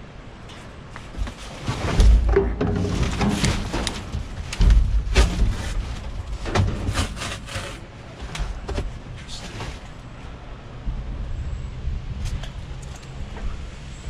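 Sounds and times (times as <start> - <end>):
wind and road rumble: 0.0 - 14.0.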